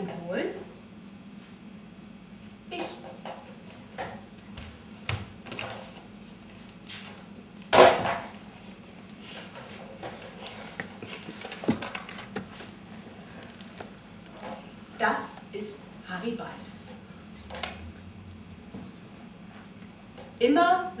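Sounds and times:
footsteps on stage floor: 3.7 - 7.2
low hum: 15.7 - 19.4.

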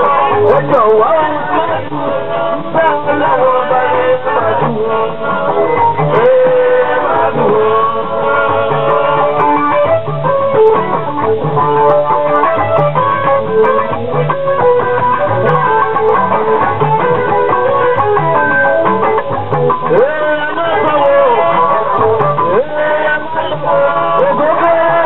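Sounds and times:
bass guitar line: 0.0 - 25.0
guitar melody: 0.0 - 25.0.

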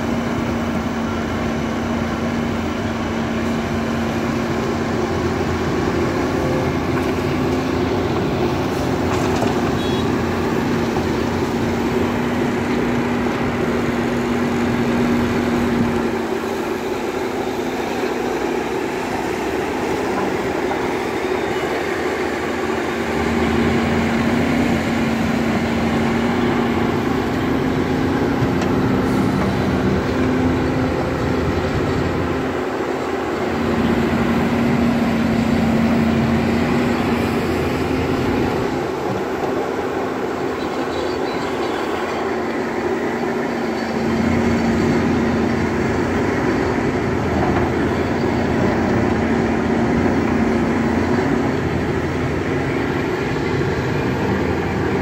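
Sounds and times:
excavator diesel engine droning: 0.0 - 55.0.

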